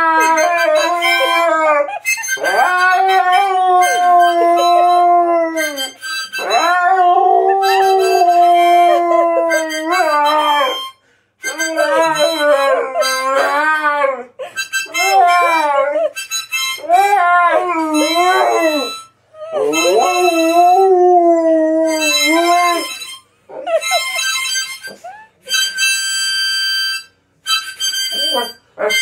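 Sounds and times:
husky howling: 0.0s - 10.8s, 11.5s - 16.2s, 16.8s - 19.0s
harmonica playing: 0.0s - 29.0s.

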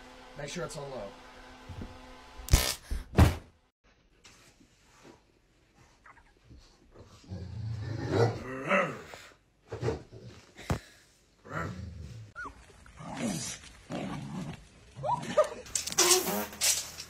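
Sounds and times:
dog grumbling and moaning: 7.0s - 10.5s, 11.4s - 15.7s
dog whining: 12.4s - 12.6s.

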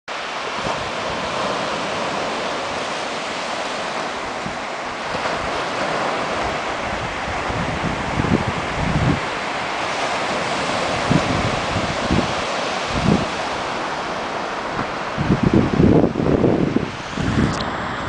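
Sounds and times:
surf breaking on beach: 0.1s - 18.0s
wind buffeting microphone: 0.5s - 18.0s.

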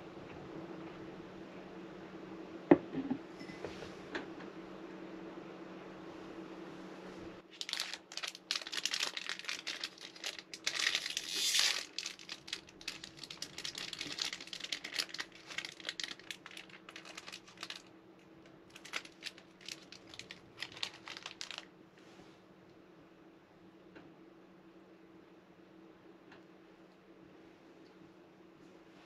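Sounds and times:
faint steady hum: 0.0s - 29.0s
crinkling and rustling: 7.4s - 21.7s.

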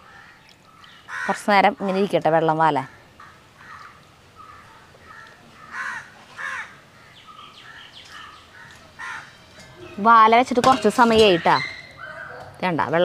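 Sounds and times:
crows cawing: 0.0s - 0.4s, 1.0s - 2.1s, 2.8s - 10.0s.

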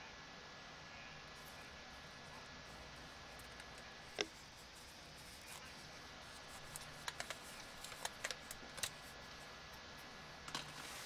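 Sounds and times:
tape wrapping clicks and taps: 6.7s - 9.0s.

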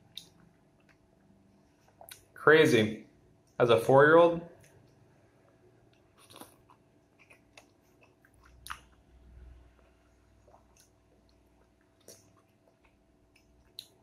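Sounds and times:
wet chewing of fruit: 5.9s - 14.0s.

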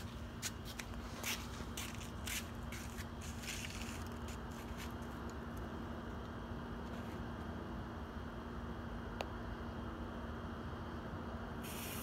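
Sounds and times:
footsteps on dirt: 0.0s - 5.2s
faint steady hum: 0.0s - 12.0s.

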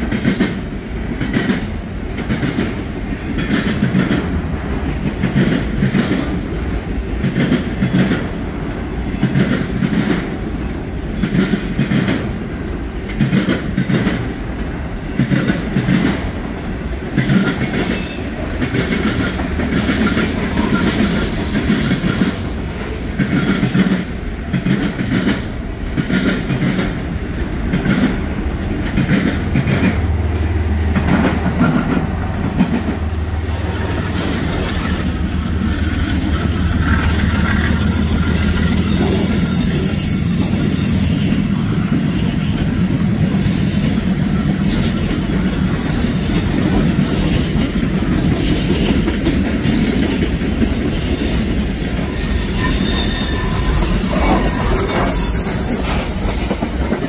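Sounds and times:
diesel locomotive engine drone: 0.0s - 57.0s
freight cars rumbling on rails: 0.0s - 57.0s
high-pitched wheel squeal: 37.3s - 41.7s, 52.0s - 57.0s.

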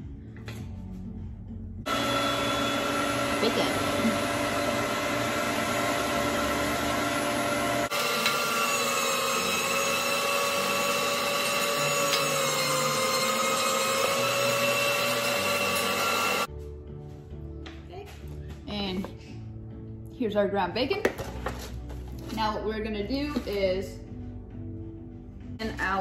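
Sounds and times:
electric meat grinder whining: 1.9s - 16.5s.

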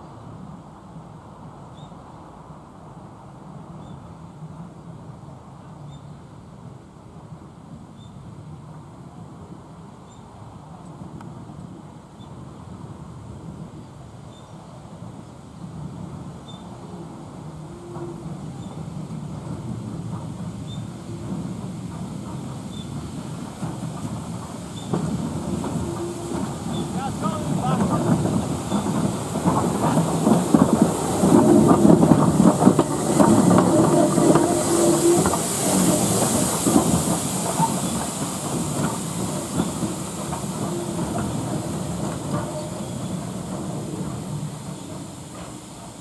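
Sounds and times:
steam hissing: 15.6s - 46.0s
steam locomotive rods knocking: 16.0s - 46.0s.

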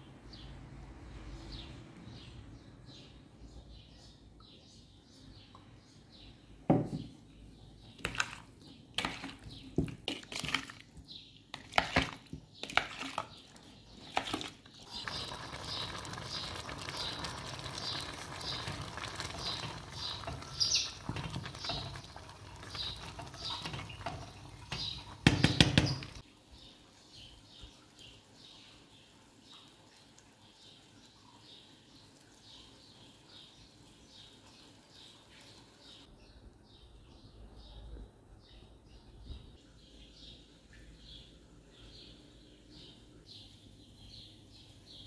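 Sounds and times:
pot of rice boiling: 12.7s - 26.2s.

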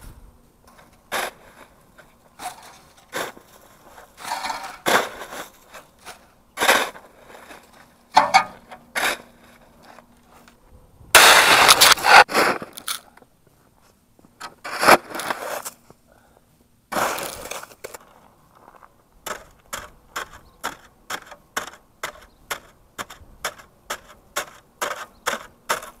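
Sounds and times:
snow shovel scraping snow: 0.7s - 8.0s, 8.9s - 10.4s, 11.2s - 13.0s, 14.6s - 15.9s, 16.9s - 18.0s
shovel chopping packed snow: 0.7s - 9.6s, 11.2s - 13.0s, 14.5s - 15.8s, 16.9s - 18.0s, 19.2s - 26.0s.

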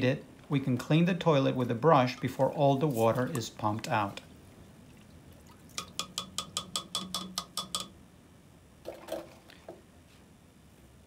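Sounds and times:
brush knocks: 2.2s - 4.3s
toilet brush clicking on porcelain: 5.8s - 8.0s.

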